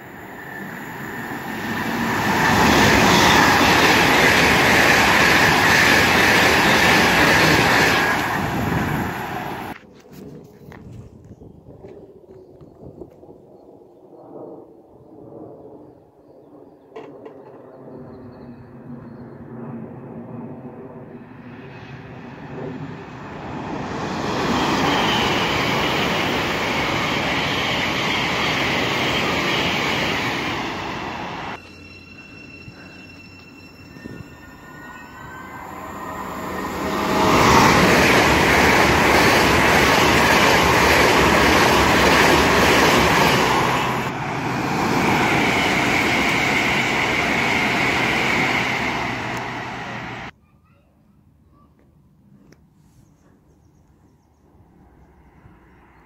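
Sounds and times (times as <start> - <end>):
high-speed train rushing past: 0.0 - 9.8, 19.2 - 50.3
train rushing past: 0.0 - 9.8, 20.6 - 50.3.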